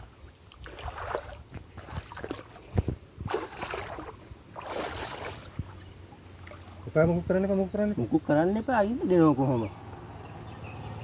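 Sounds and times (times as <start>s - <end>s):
stream water splashing: 0.0s - 7.6s.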